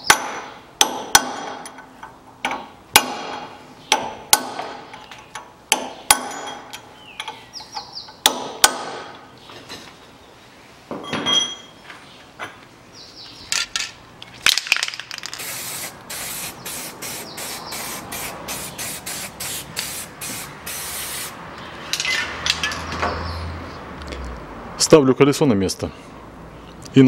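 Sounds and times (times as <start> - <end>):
aerosol spray can hissing: 15.4 - 21.4.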